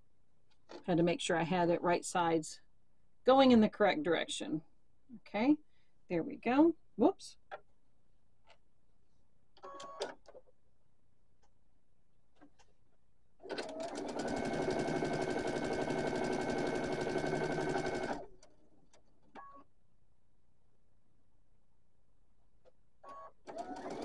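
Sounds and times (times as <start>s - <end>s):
sewing machine stitching: 13.4s - 18.6s, 23.1s - 24.0s.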